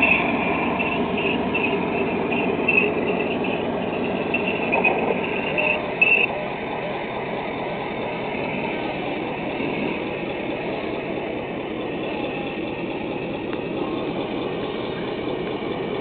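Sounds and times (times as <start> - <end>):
high squeaks: 0.0 - 6.3
engine sound effects: 0.0 - 16.0
model tanks running on dirt: 0.0 - 16.0.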